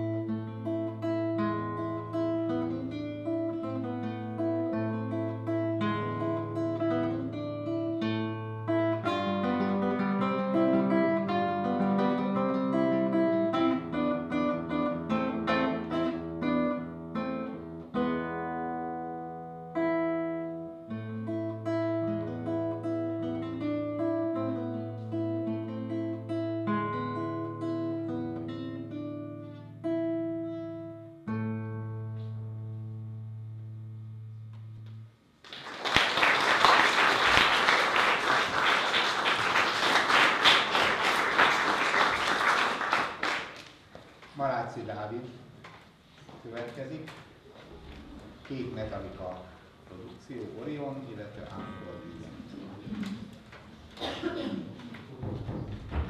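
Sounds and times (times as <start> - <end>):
fingerpicked classical guitar: 0.0 - 35.2
audience applause: 35.4 - 43.8.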